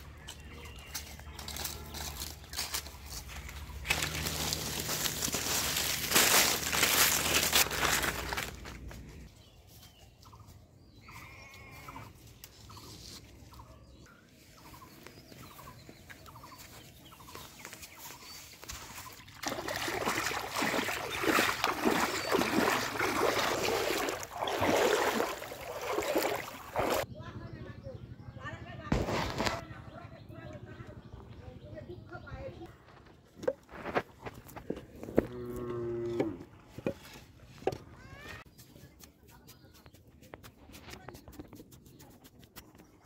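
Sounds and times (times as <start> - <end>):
footsteps crunching dry leaves: 0.0 - 10.4, 14.4 - 27.1
wading splashing through water: 1.4 - 8.6, 18.0 - 27.1.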